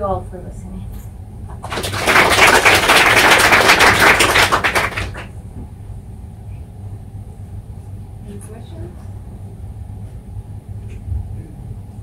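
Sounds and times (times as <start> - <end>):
audience applauding: 1.5 - 5.3.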